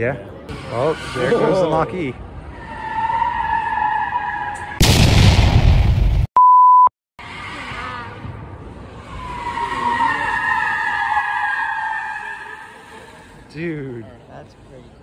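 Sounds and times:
tires squealing on concrete: 0.4s - 4.8s, 7.2s - 15.0s
censor bleep: 6.4s - 6.9s.

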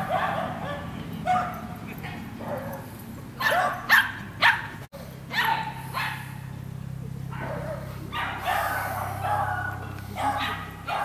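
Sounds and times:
dog barking: 0.0s - 1.7s, 2.4s - 4.7s, 5.3s - 6.4s, 7.3s - 11.0s.

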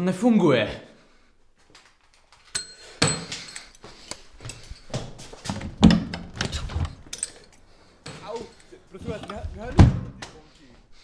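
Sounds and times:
objects knocking and clattering: 1.7s - 3.8s, 4.4s - 10.0s
metallic clinks: 2.4s - 5.0s, 7.0s - 7.7s.

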